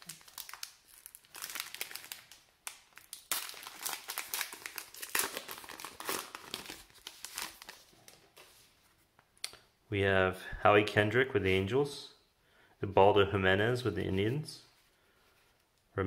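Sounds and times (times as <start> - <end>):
foil wrapper tearing and crinkling: 0.0 - 7.9.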